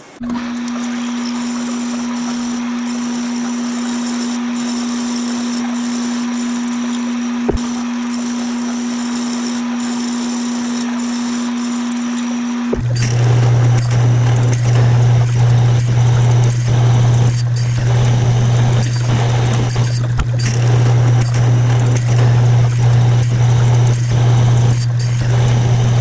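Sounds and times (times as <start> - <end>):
drill grinding into metal: 0.0 - 26.0
metal lathe humming: 0.0 - 26.0.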